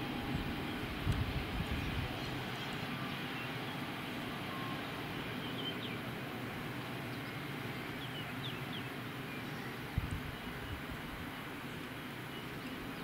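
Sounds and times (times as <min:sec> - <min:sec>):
jet engines roaring: 0:00.0 - 0:13.0
faint high chirps: 0:04.3 - 0:06.0.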